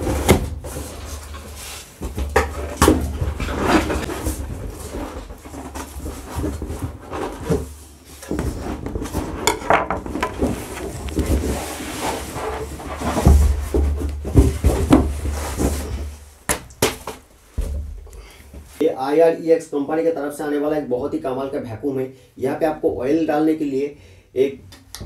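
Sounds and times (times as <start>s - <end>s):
cardboard packaging rustling: 0.0s - 18.8s.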